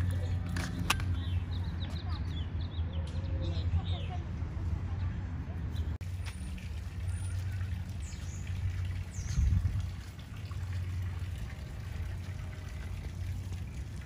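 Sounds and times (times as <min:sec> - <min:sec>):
fountain water trickling: 0:06.0 - 0:14.0.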